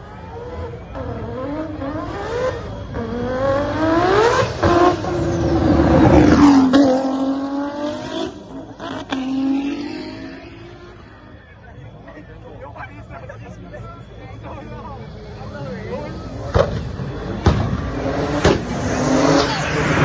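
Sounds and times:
race car accelerating past: 0.4 - 11.4, 16.1 - 20.0.

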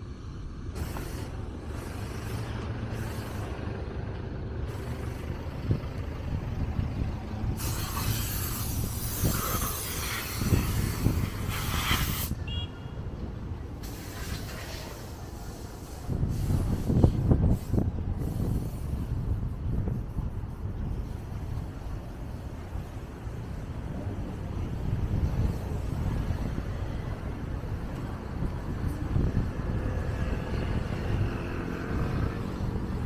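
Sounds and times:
low rumble of passing vehicles: 0.0 - 33.0
loud hissing rush: 0.2 - 3.8, 7.1 - 12.4, 13.7 - 27.8.

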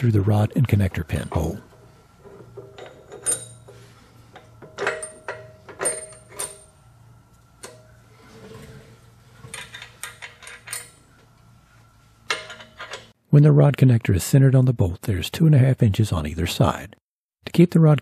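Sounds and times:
metal bolt clinking: 1.3 - 3.8, 4.4 - 6.8, 9.4 - 11.3, 12.2 - 13.1.

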